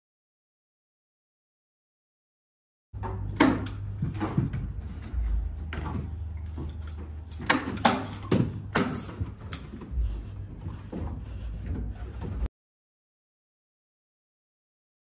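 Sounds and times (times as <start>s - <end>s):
steady low hum: 3.0s - 12.5s.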